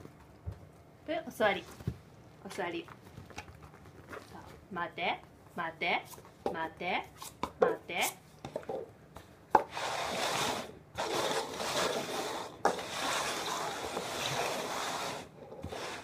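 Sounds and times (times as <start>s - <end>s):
cups scraping on carpet: 9.6s - 16.0s.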